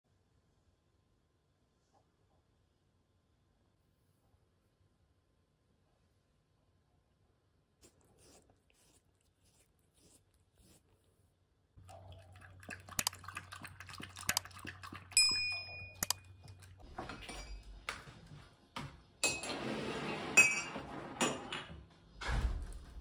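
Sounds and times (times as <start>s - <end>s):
dishes and utensils clinking: 15.2s - 17.7s, 19.2s - 19.6s, 20.3s - 21.6s.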